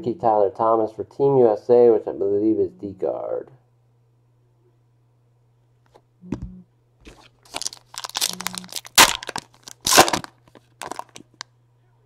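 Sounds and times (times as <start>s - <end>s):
foil wrapper tearing and crinkling: 7.2s - 11.4s.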